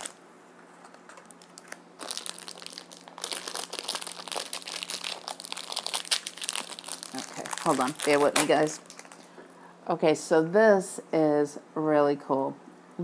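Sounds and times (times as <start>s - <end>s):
crinkly packaging being opened: 0.0s - 9.6s.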